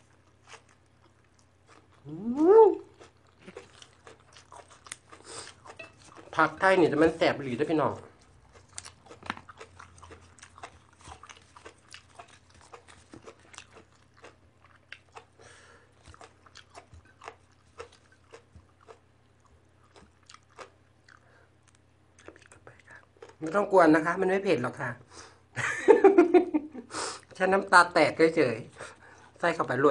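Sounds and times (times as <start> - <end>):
close-up chewing and crunching: 0.0 - 23.7.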